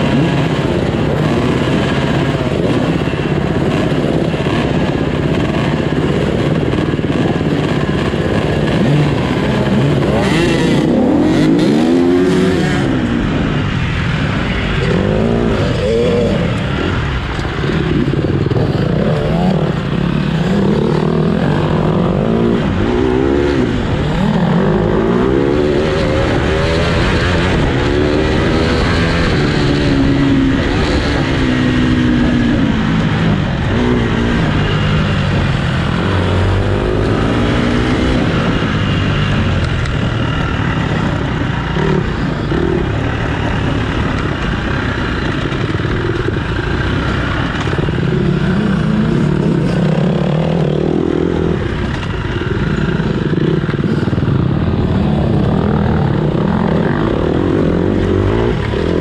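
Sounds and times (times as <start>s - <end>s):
dirt bike engines racing: 0.0s - 59.0s.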